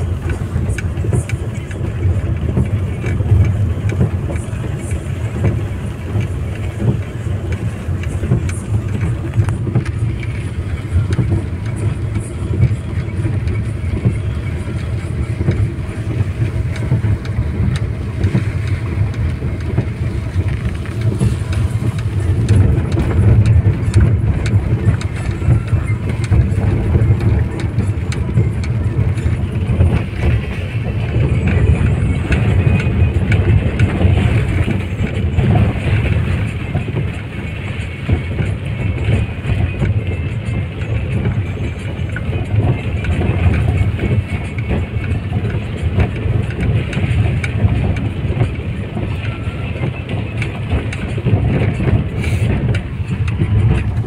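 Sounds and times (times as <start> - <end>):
car engine rumble: 0.0 - 54.0
rain ticking on windscreen: 0.0 - 54.0
tyres on wet road: 0.0 - 54.0.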